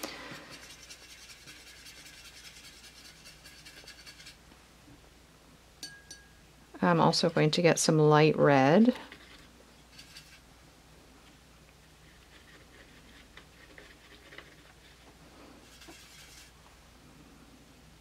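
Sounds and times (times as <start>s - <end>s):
paintbrush scratching in metal tin: 0.3s - 4.4s, 9.0s - 10.4s, 12.0s - 16.6s.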